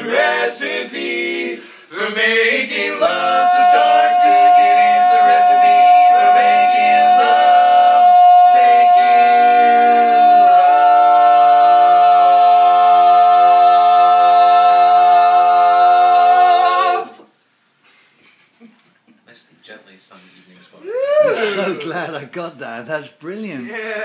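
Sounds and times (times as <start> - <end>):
male vocal quartet singing: 0.0 - 17.3.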